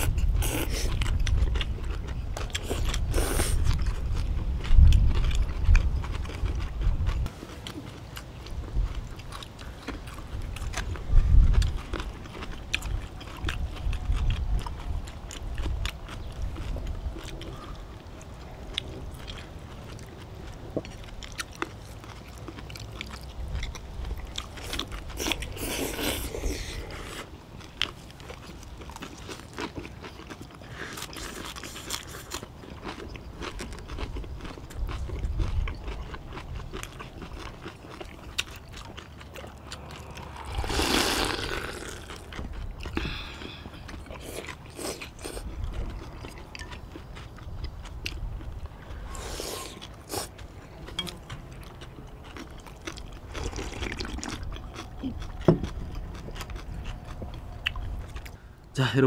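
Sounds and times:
chewing and crunching: 0.0 - 59.0
slurping noodles: 39.8 - 42.3, 53.4 - 54.4.

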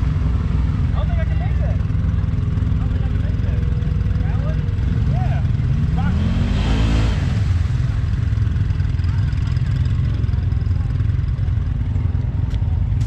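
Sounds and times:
utility vehicle engine revving: 0.0 - 13.0.

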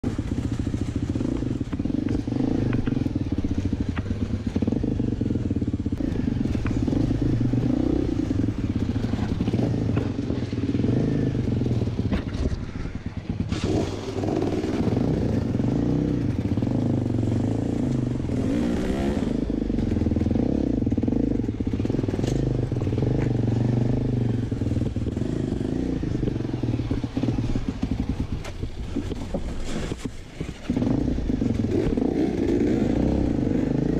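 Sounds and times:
dirt bike engine revving: 0.1 - 28.4, 30.6 - 33.9.

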